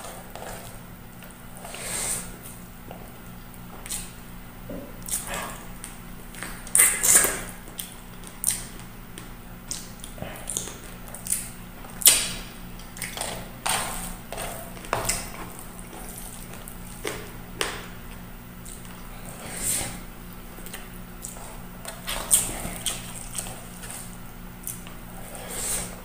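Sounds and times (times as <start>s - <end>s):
chewing and lip smacking: 4.8s - 19.2s, 20.5s - 25.0s.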